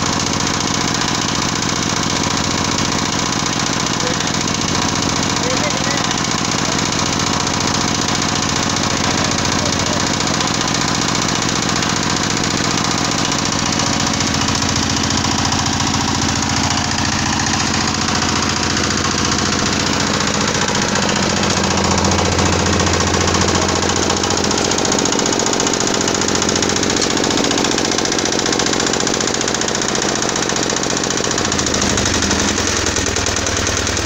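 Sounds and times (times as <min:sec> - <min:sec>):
screw press mechanical clatter: 0:24.4 - 0:32.6.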